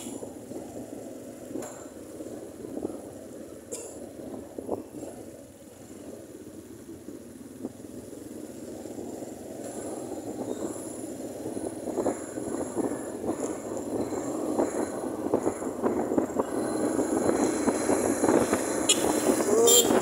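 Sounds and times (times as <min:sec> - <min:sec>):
motorcycle engine: 0:00.0 - 0:20.0
wind noise: 0:08.8 - 0:20.0.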